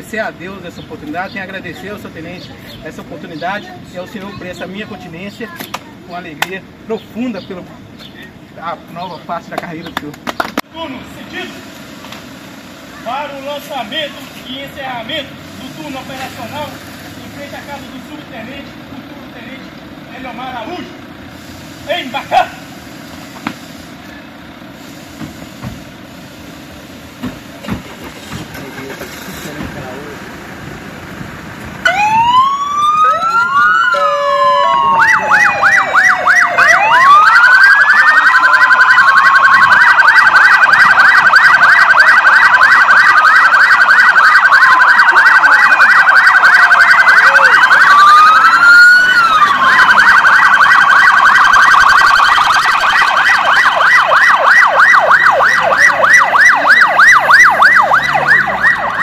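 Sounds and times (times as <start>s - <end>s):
police sirens wailing: 10.9s - 21.2s, 26.0s - 59.0s
police siren yelp: 31.8s - 59.0s.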